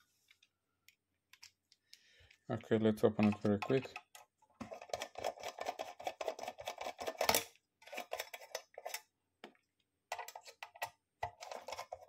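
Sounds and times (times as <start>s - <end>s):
screwdriver clicking and scraping: 3.2s - 9.1s, 10.1s - 12.0s.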